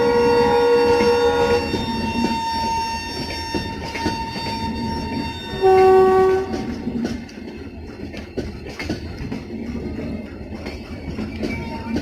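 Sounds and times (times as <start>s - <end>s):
train horn honking: 0.0s - 6.8s
train wheels clattering over rails: 0.0s - 12.0s.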